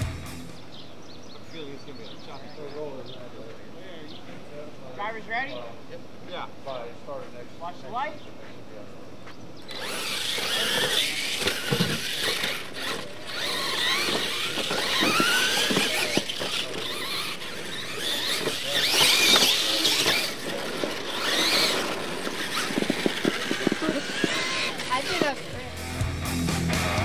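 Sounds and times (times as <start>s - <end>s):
tyres on dirt: 8.0s - 27.0s
toy truck motors whining: 9.6s - 26.0s.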